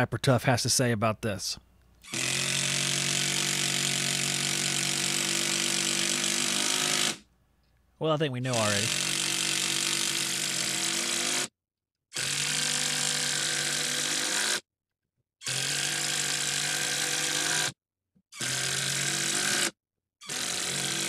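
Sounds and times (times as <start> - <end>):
impact driver driving screws into wood: 2.0 - 7.2, 8.9 - 11.5, 15.4 - 17.8, 18.4 - 21.0.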